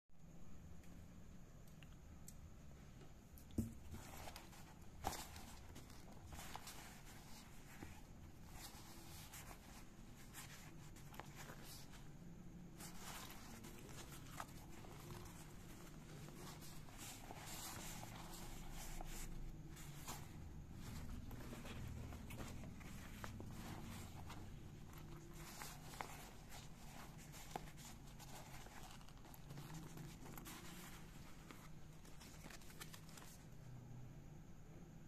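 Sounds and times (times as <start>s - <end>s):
low steady hum: 0.2s - 35.0s
fabric bag rustling: 3.9s - 33.6s.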